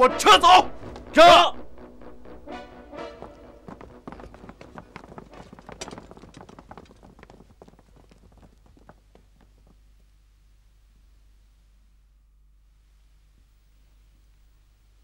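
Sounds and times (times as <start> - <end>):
group footsteps walking: 0.6 - 1.2, 2.5 - 10.0.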